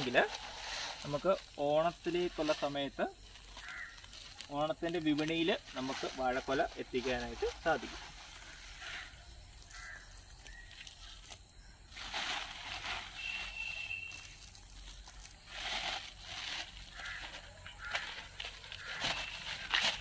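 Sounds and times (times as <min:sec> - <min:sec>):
plastic sack crinkling: 0:11.9 - 0:20.0.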